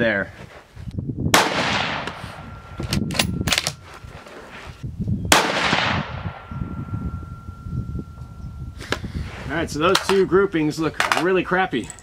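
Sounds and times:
wind buffeting microphone: 0.7s - 12.0s
rifle shot: 1.3s - 2.5s, 5.3s - 6.5s.

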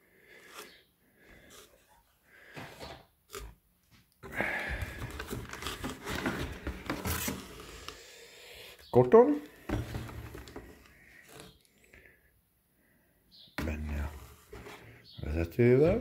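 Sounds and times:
cardboard and paper rustling: 4.2s - 8.0s, 9.6s - 11.6s.

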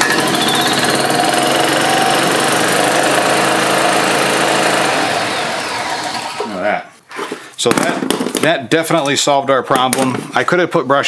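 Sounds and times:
golf cart engine running: 0.0s - 6.4s.

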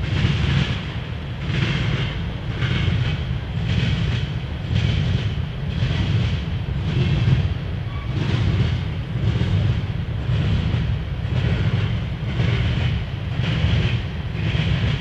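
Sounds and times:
freight train rolling past: 0.0s - 15.0s
rhythmic wheel clatter: 0.0s - 15.0s.

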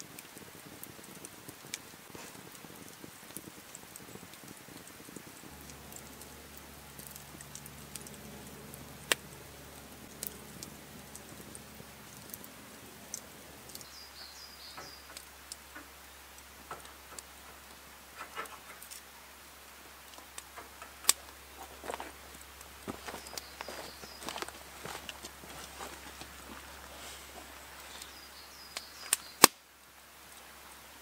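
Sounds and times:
faint low hum: 5.4s - 28.8s
sharp clicks and knocks: 16.6s - 19.0s.

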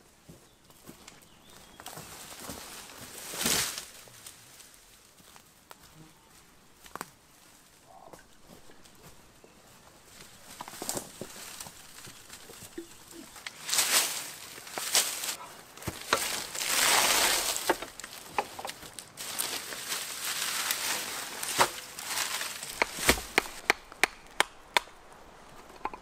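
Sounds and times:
dry reed rustling: 1.5s - 23.7s
billhook chopping wood: 22.7s - 25.0s.

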